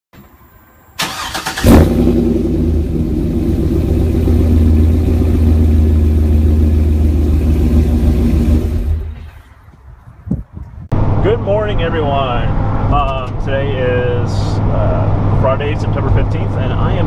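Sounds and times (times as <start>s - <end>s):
car engine starting and running: 0.2s - 9.6s.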